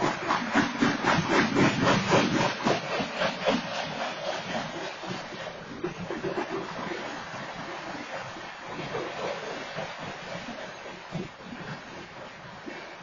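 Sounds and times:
train wheels clattering on rails: 0:00.0 - 0:06.8
train rumble and hiss: 0:00.0 - 0:13.0.

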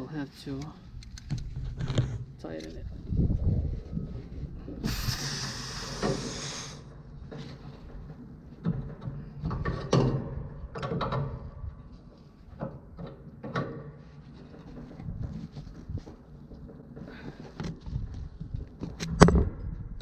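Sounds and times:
brief hiss: 0:04.8 - 0:06.8
metallic clicks and knocks: 0:07.3 - 0:11.6.

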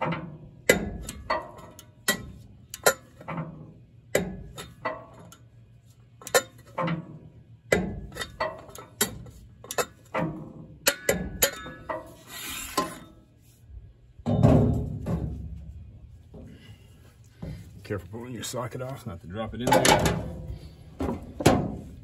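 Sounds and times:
metal scraping slide: 0:11.6 - 0:13.2.

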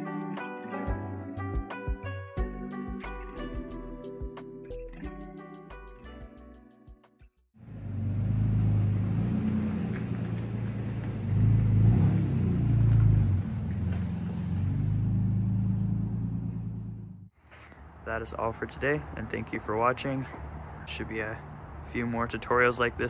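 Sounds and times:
truck engine driving by: 0:07.6 - 0:17.3.

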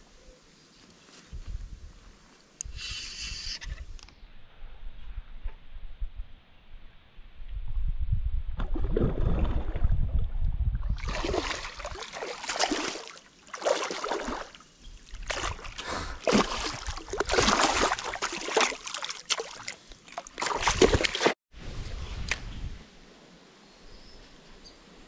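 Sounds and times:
fish splashing in water: 0:11.0 - 0:21.4.

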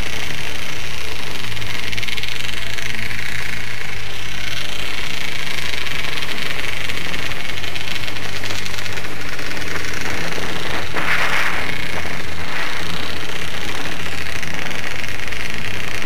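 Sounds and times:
off-road vehicle engine running: 0:00.0 - 0:16.0
trail noise: 0:00.2 - 0:16.0
wind rush: 0:09.7 - 0:13.3.

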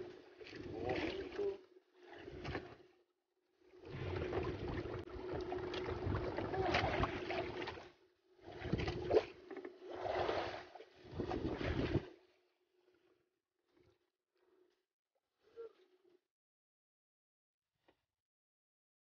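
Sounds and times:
sea noise: 0:03.6 - 0:12.3.

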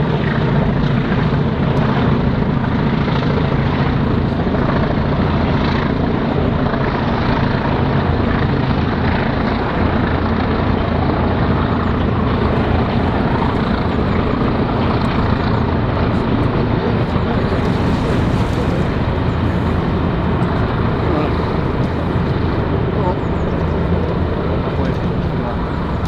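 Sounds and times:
diesel locomotive engine at full power: 0:00.0 - 0:26.0.

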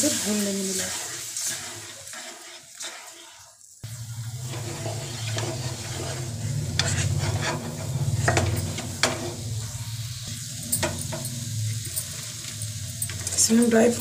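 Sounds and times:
wooden spatula scraping a pan: 0:00.0 - 0:09.5
mixture sizzling: 0:00.0 - 0:14.0
low hum: 0:03.8 - 0:14.0.

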